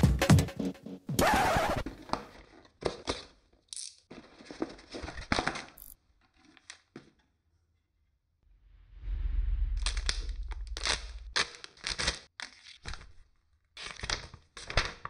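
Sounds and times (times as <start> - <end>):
loud noisy swish: 8.5 - 11.6.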